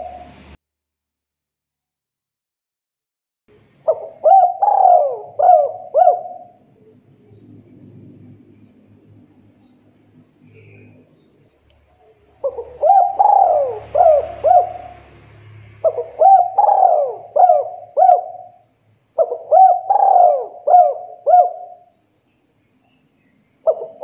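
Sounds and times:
dove cooing: 0.0 - 0.4, 3.8 - 8.8, 12.0 - 18.6, 19.2 - 21.9, 23.6 - 24.0.

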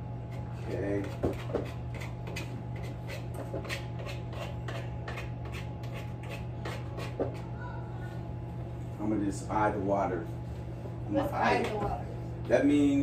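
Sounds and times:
steady low hum: 0.0 - 13.0
utensil scraping in mixing bowl: 0.3 - 7.6.

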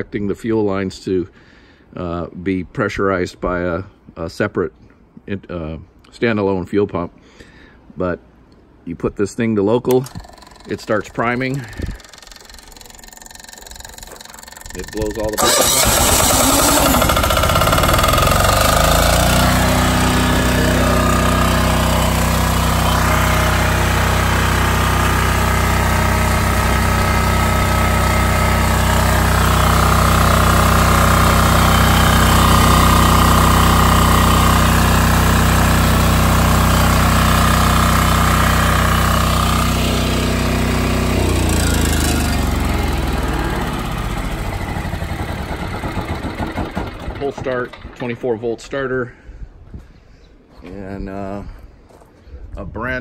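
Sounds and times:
diesel generator running: 9.9 - 49.4.

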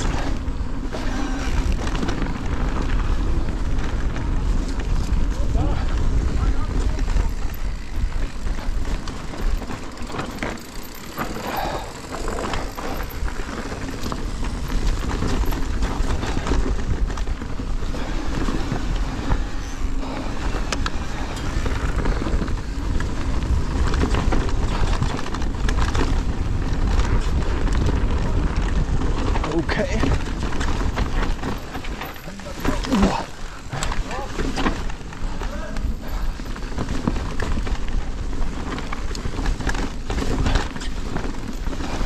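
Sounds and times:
bike clattering and rattling: 0.0 - 42.0
bike tyres over stones: 0.0 - 42.0.

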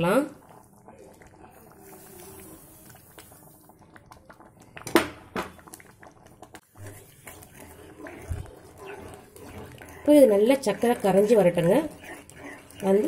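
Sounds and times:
sugar pouring hiss: 1.5 - 3.6.

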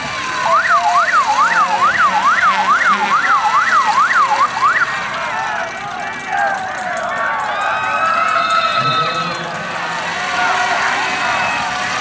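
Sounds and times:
siren yelping: 0.4 - 5.1.

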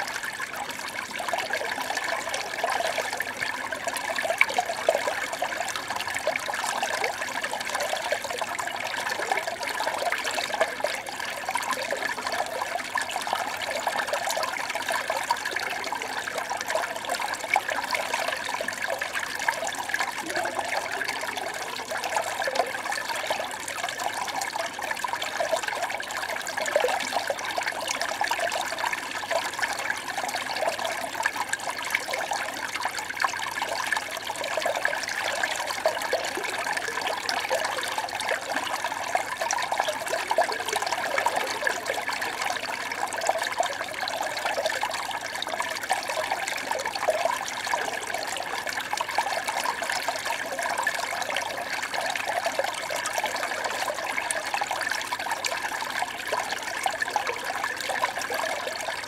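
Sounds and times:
small stream babbling: 0.0 - 59.0.

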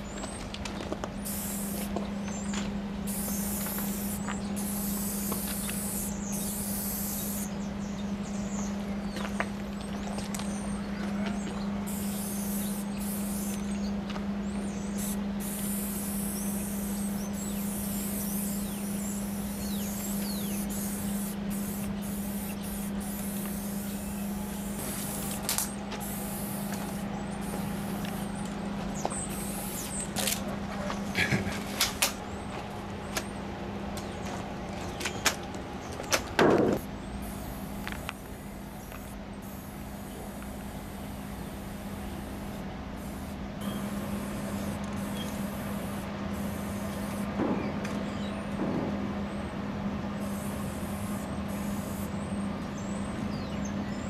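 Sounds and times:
steady low hum: 0.0 - 54.0
spray paint cans hissing: 1.2 - 2.0, 3.0 - 7.5, 11.9 - 13.8, 14.8 - 28.5, 29.2 - 30.4, 36.6 - 47.3, 50.2 - 52.1
sharp knocks: 36.4 - 36.8, 47.4 - 47.8, 48.6 - 49.0.

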